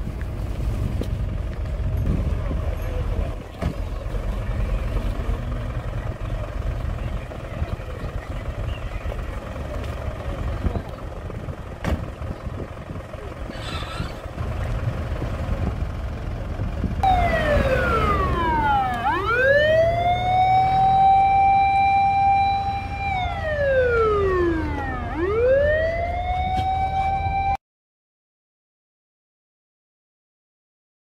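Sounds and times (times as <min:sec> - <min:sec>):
truck engine running: 0:00.0 - 0:27.4
fire engine siren wailing: 0:17.0 - 0:27.6.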